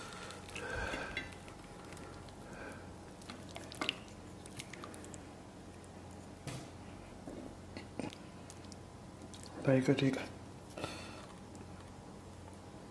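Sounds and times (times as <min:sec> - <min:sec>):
wet squishing of meat: 0:00.0 - 0:06.2, 0:08.5 - 0:09.6.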